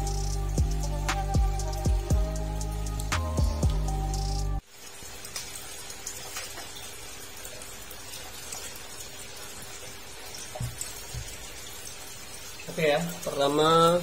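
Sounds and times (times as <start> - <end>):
water running and trickling: 0.0 - 14.0
soft knocks: 10.5 - 11.4.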